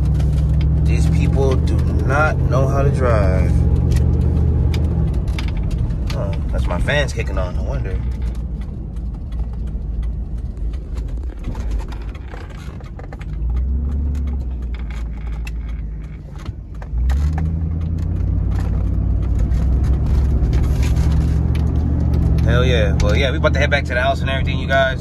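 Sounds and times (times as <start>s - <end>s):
road noise inside cab: 0.0s - 25.0s
truck engine drone: 0.0s - 25.0s.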